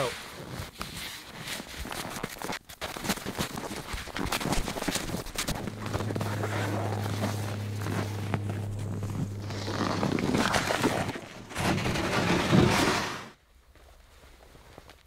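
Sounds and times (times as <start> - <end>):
sled dragged over snow: 0.0 - 13.4
snow scraping and rustling: 0.0 - 13.4
boots crunching in snow: 3.1 - 13.2
steady low hum: 3.8 - 12.8.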